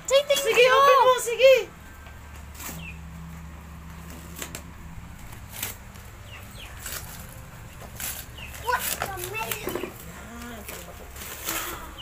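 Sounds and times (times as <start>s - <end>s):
low steady hum: 0.0s - 12.0s
wrapping paper tearing and crinkling: 4.0s - 12.0s.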